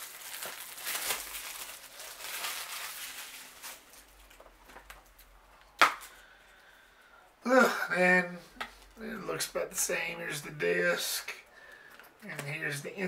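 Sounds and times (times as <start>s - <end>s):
plastic wrap crinkling and tearing: 0.0s - 6.2s.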